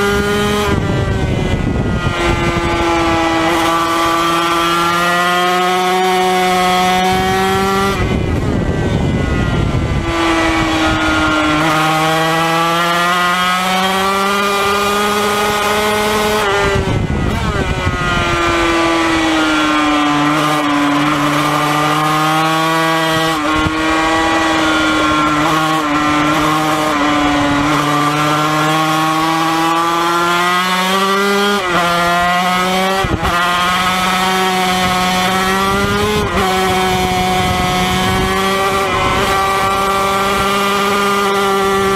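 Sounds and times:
rough ragged engine noise: 0:00.0 - 0:41.9
two-stroke engine revving hard: 0:00.0 - 0:41.9.

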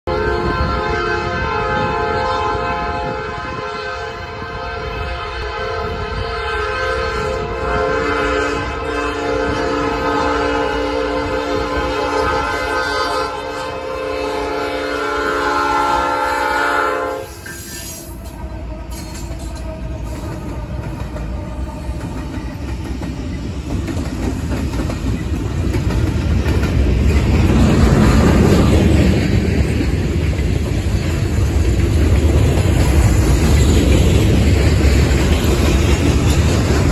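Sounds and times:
locomotive air horn: 0:00.1 - 0:22.4, 0:27.6 - 0:28.9
freight cars rolling on rails: 0:17.2 - 0:36.9
locomotives rumbling past: 0:18.0 - 0:36.9.

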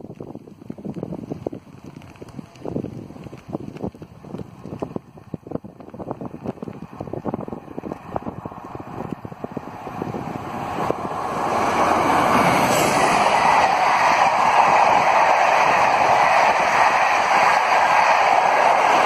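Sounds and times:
wheels rushing on rail: 0:00.0 - 0:19.0
wind buffeting microphone: 0:00.0 - 0:19.0
train running past: 0:07.8 - 0:19.0.

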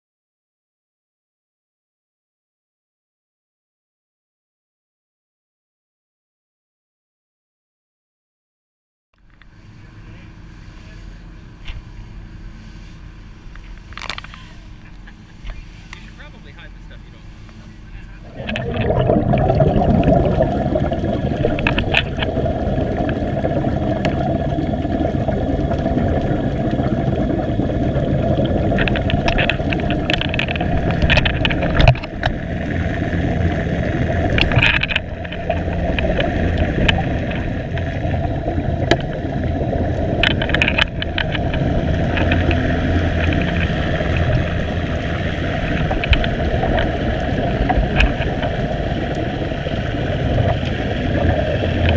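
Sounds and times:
low underwater rumble and hum: 0:09.2 - 0:51.9
air bubbles rising: 0:18.1 - 0:51.9.

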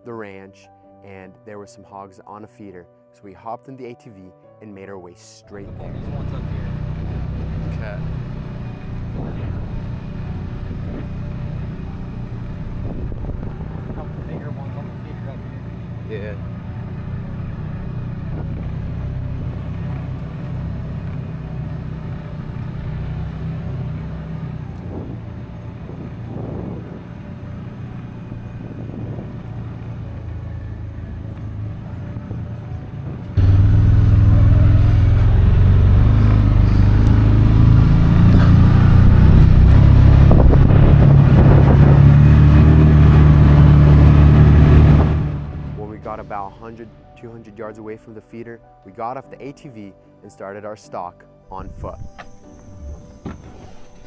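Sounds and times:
atv engine running: 0:05.6 - 0:46.3
rushing air: 0:33.1 - 0:45.9.

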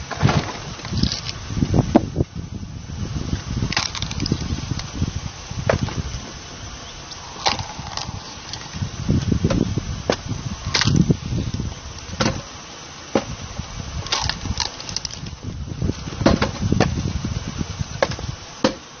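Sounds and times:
log splitter cone spinning: 0:00.0 - 0:19.0
wood groaning and cracking: 0:03.2 - 0:12.5, 0:13.1 - 0:17.4.

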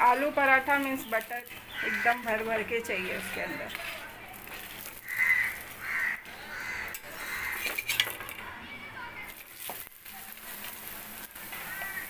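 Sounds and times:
crow cawing: 0:01.7 - 0:02.4, 0:05.0 - 0:07.6, 0:11.6 - 0:12.0
metal spatula scraping iron pan: 0:06.8 - 0:08.2.

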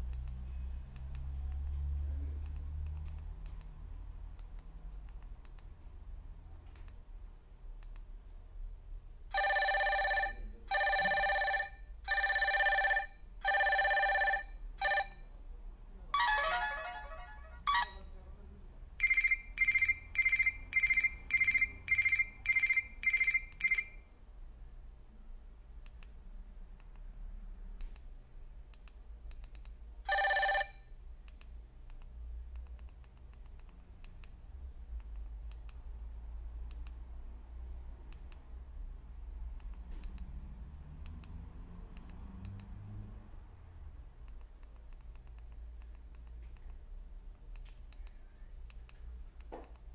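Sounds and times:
phone ringtone ringing: 0:09.3 - 0:15.2, 0:16.2 - 0:18.1, 0:19.0 - 0:24.1, 0:30.1 - 0:30.8.

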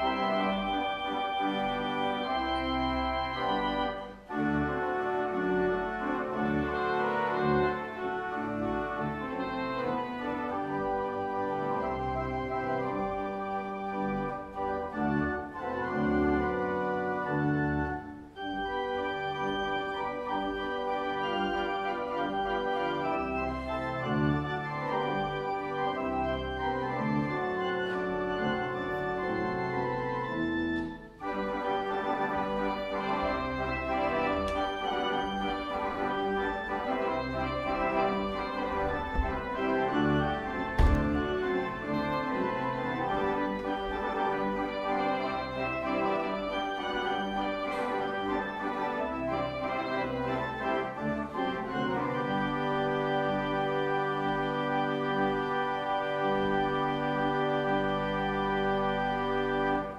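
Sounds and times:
organ playing sustained chords: 0:00.0 - 0:59.9
single knock: 0:38.9 - 0:39.6, 0:40.7 - 0:41.4.

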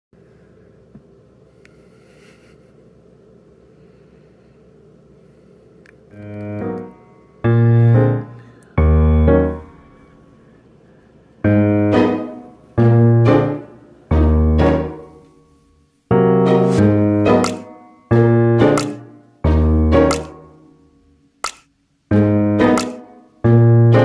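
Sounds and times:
piano music in short phrases: 0:16.1 - 0:20.5.

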